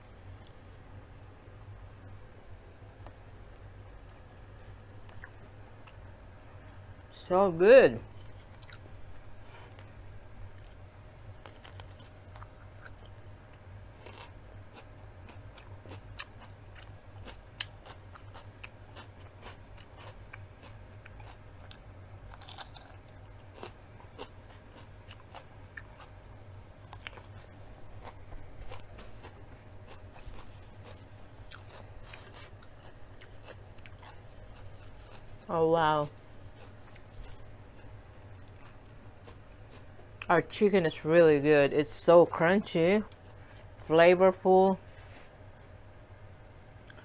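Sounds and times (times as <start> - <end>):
crunchy chewing: 8.1 - 9.0, 9.7 - 40.3.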